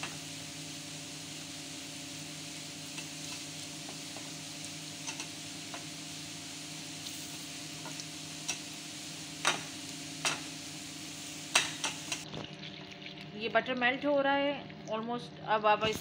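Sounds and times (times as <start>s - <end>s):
butter sizzling in a frying pan: 0.0s - 13.3s.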